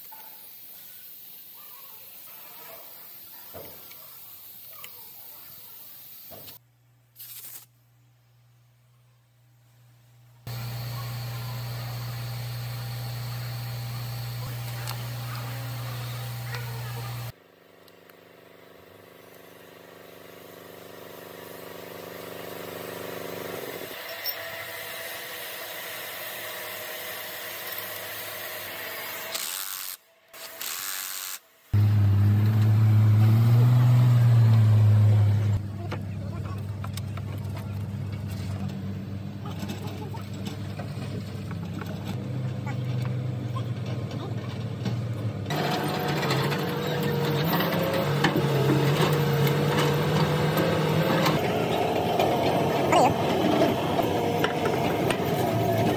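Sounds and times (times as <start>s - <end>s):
steady mechanical hum: 8.2s - 17.9s
cordless power driver running: 10.5s - 17.4s.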